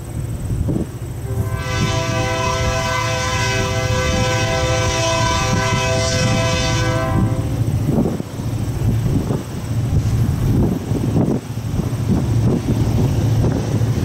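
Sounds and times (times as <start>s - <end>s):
locomotive air horn blast: 1.2s - 7.8s.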